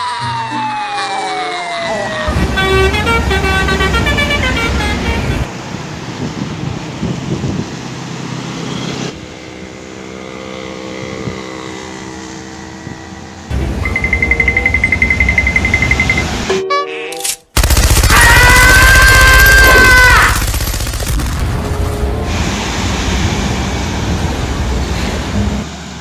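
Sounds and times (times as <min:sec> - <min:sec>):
siren sweeping down: 0:00.0 - 0:03.8
truck engine droning: 0:00.0 - 0:16.5
road traffic noise: 0:00.0 - 0:26.0
vehicle horn playing a tune: 0:02.3 - 0:05.5, 0:16.5 - 0:17.3
loud engine rumble: 0:02.3 - 0:16.5, 0:17.6 - 0:26.0.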